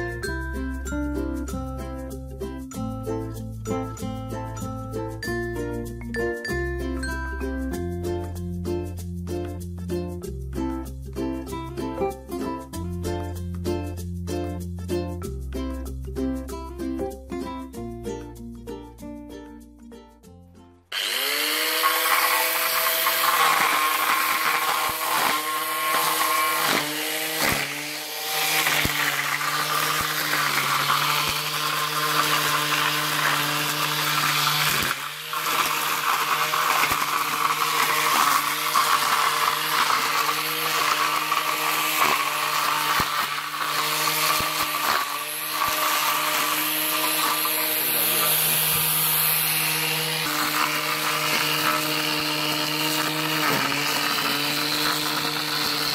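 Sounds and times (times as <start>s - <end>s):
grass trimmer high whine: 20.9s - 55.9s.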